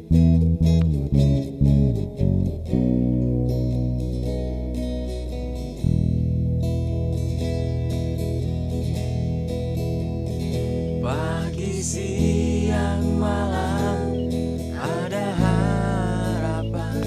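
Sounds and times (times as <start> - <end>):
guitar accompaniment: 0.0 - 17.0
person singing wavering melody: 11.0 - 17.0.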